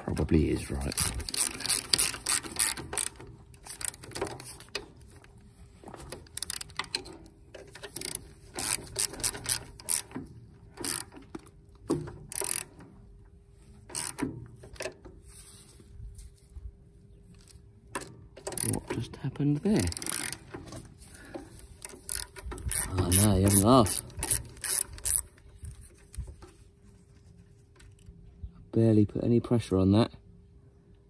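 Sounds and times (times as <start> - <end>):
ratchet wrench clicking: 0.7 - 4.8, 6.2 - 10.2, 10.8 - 11.5, 12.2 - 12.8, 13.9 - 15.0, 18.0 - 18.9, 19.6 - 20.5, 21.8 - 25.4.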